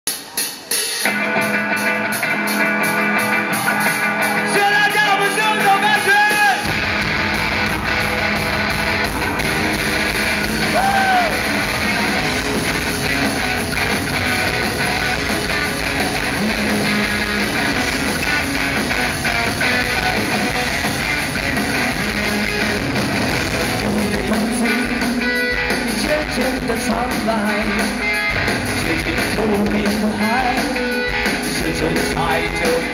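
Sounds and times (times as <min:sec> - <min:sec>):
live rock band playing: 0:00.1 - 0:32.9.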